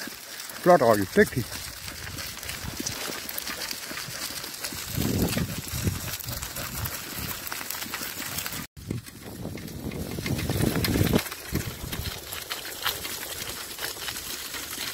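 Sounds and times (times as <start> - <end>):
wheels and paws crunching gravel: 0.0 - 14.9.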